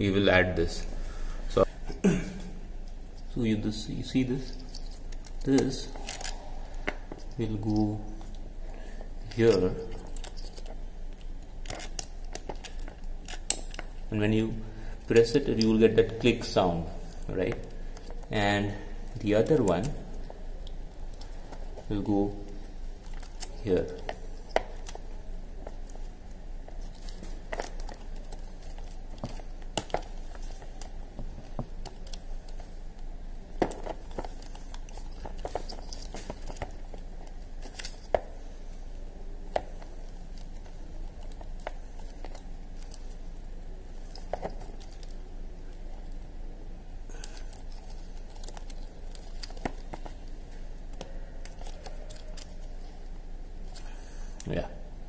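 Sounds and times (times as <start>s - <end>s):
wires rustling and crinkling: 2.7s - 55.0s.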